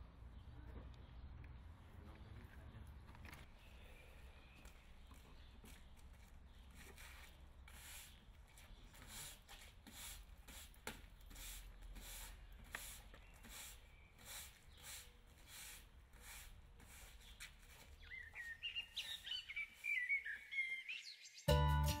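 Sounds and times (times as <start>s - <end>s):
push broom sweeping paving: 6.6s - 20.2s.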